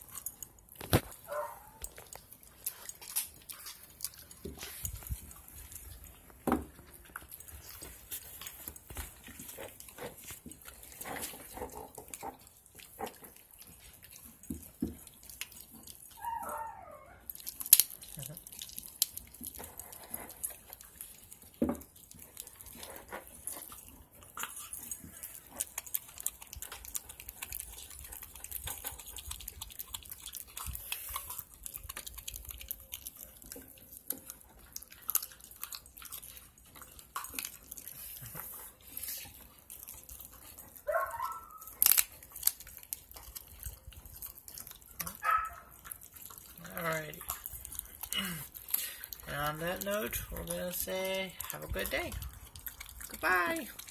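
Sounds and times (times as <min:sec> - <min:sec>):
puppies crunching bones: 0:00.0 - 0:53.9
puppy whimper: 0:16.1 - 0:17.3.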